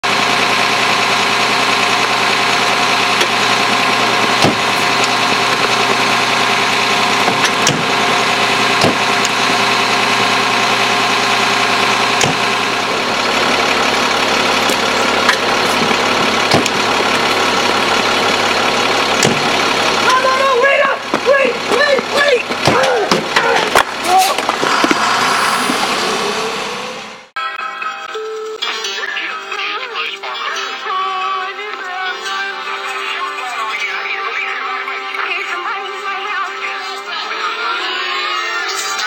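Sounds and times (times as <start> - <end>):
engine idling: 0.0 - 27.3
sharp clicks and knocks: 14.7 - 16.8, 19.2 - 19.5.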